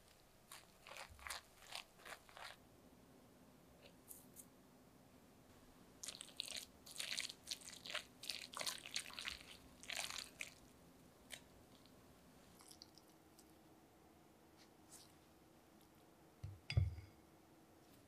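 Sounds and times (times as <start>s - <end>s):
spatula stirring batter in bowl: 0.0s - 2.6s.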